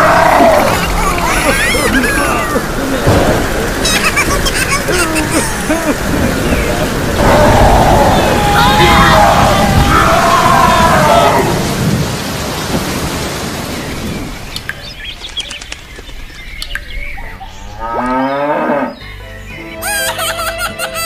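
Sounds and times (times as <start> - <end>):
loud rushing noise: 2.3 - 13.6
cow mooing: 17.8 - 19.0
music: 18.3 - 21.0.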